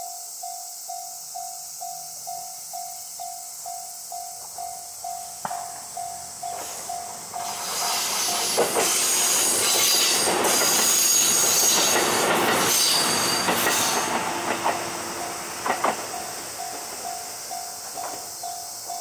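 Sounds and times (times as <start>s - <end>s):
level-crossing warning bell: 0.0s - 19.0s
train rumble: 4.1s - 19.0s
wheels clacking over rail joints: 5.4s - 19.0s
high-pitched wheel squeal: 7.4s - 14.3s.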